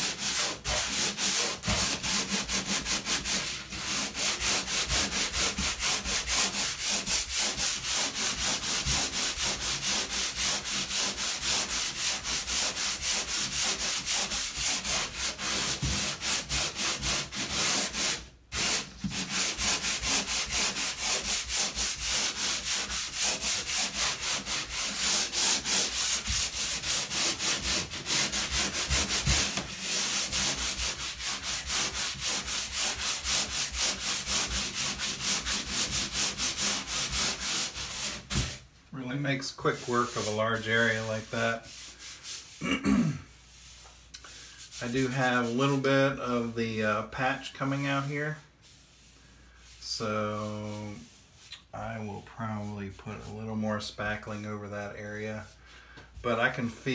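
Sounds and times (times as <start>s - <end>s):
sanding pad scraping drywall: 0.0s - 42.7s, 43.4s - 55.6s, 56.2s - 56.9s.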